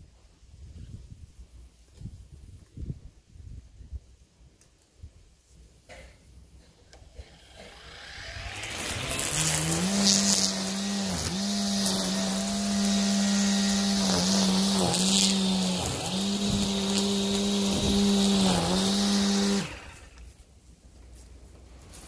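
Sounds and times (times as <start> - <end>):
electric lawn tool motor cutting: 7.0 - 20.4.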